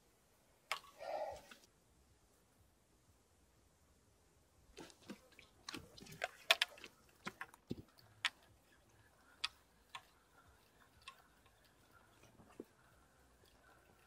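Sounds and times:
fishing tackle clicking: 5.1 - 14.0.

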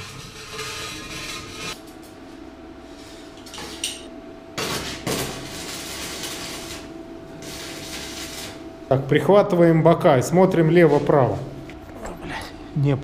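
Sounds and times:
faint hum: 0.0 - 13.0
welding arc crackling: 4.6 - 9.0.

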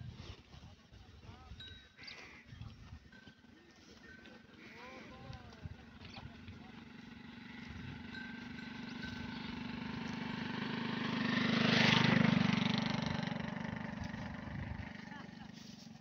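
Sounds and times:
vehicle engine passing by: 6.4 - 16.0.

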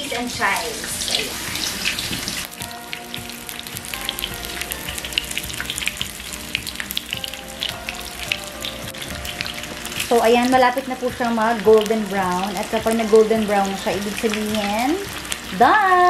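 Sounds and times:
chicken frying in hot oil: 0.0 - 16.0.

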